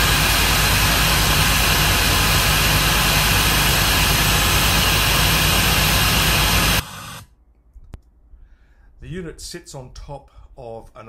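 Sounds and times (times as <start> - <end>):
vacuum air rush: 0.0 - 7.3.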